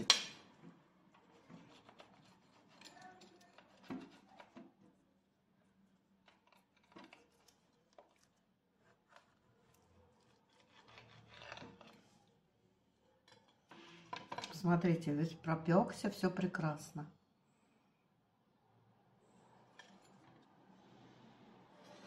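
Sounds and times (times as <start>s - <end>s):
pizza cutter crunching crust: 1.3s - 4.7s, 6.3s - 12.3s
cutter scraping plate: 10.3s - 12.2s.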